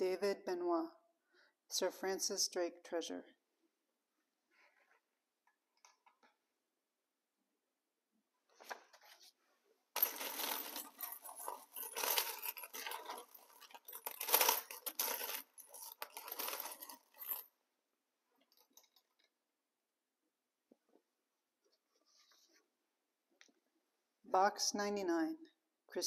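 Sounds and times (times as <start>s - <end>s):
coins clinking: 10.0s - 17.5s.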